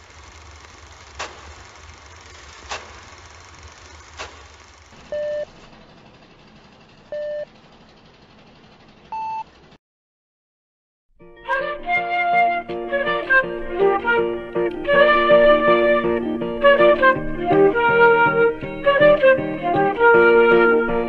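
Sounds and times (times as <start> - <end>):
old film hiss: 0.0 - 5.0
low hum: 0.0 - 9.5
sharp pops: 1.1 - 3.4, 4.0 - 5.1.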